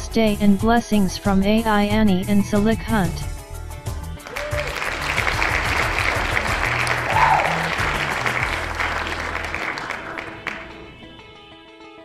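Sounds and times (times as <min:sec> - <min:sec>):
background music with bass line: 0:00.0 - 0:11.5
crowd applause: 0:04.2 - 0:11.2.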